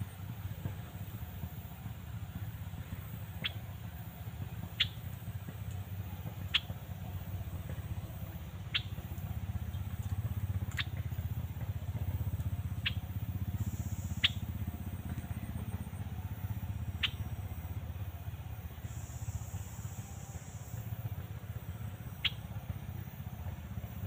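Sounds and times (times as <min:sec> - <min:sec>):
steady low rumble: 0:00.0 - 0:24.0
bird call notes sweeping downward: 0:12.7 - 0:14.7, 0:15.6 - 0:17.7, 0:22.0 - 0:22.6.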